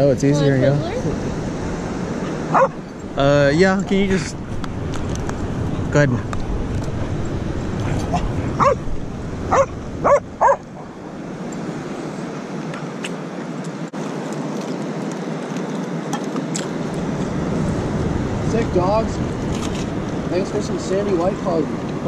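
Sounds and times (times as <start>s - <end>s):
wind: 0.0s - 22.0s
dog barking: 2.5s - 2.8s, 8.6s - 8.8s, 9.5s - 10.6s.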